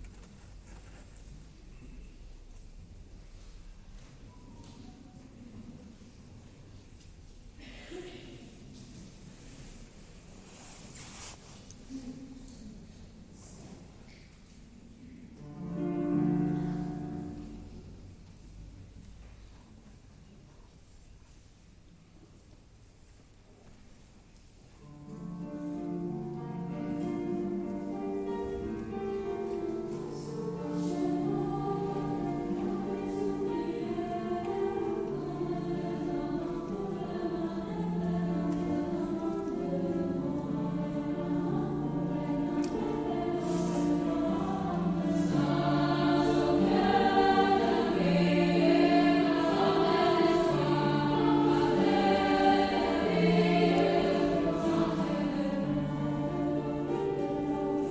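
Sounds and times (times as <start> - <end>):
choir singing: 15.4 - 17.9, 24.8 - 57.9.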